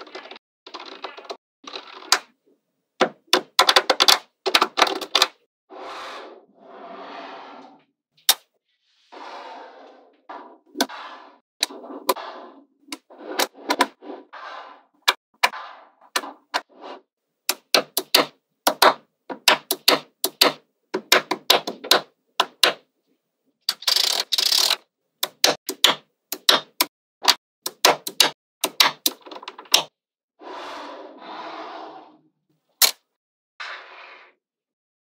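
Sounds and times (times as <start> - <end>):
magnetic balls clicking together: 23.7 - 29.8.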